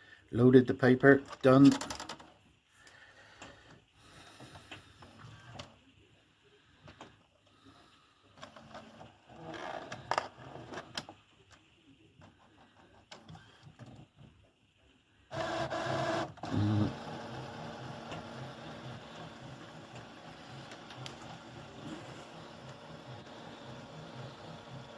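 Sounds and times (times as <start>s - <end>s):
printer mechanism clicking and whirring: 4.7s - 5.8s, 12.2s - 14.1s, 15.3s - 24.9s
printer motor whir: 13.0s - 14.0s, 15.3s - 24.9s.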